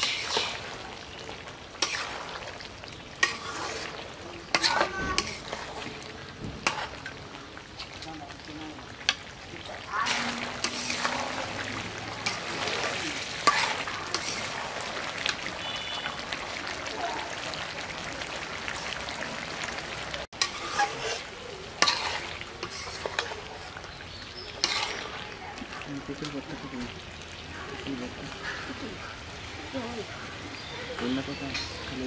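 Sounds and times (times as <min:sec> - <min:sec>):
metal spatula scraping wok: 0:00.0 - 0:08.0, 0:09.9 - 0:15.8, 0:20.4 - 0:25.4
curry sizzling: 0:00.0 - 0:32.0.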